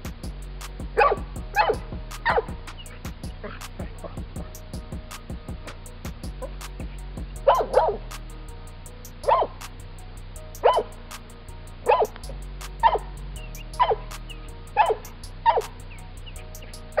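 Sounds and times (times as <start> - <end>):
dog barking loudly: 1.0 - 2.5, 7.5 - 8.0, 9.3 - 9.5, 10.6 - 10.9, 11.9 - 12.2, 12.8 - 13.0, 14.8 - 15.7.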